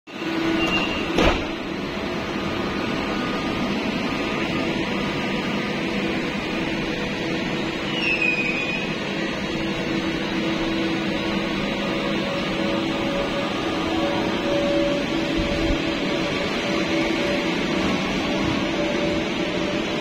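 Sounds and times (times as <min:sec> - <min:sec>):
electric train humming drone: 0:00.1 - 0:20.0
short high squeal: 0:00.5 - 0:01.2, 0:07.8 - 0:09.0.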